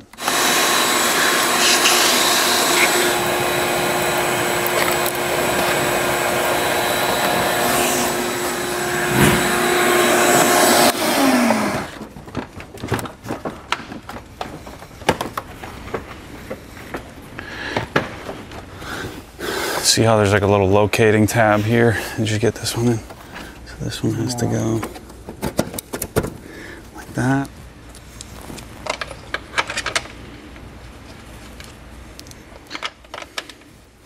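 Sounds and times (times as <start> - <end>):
vacuum cleaner whining: 0.0 - 12.1.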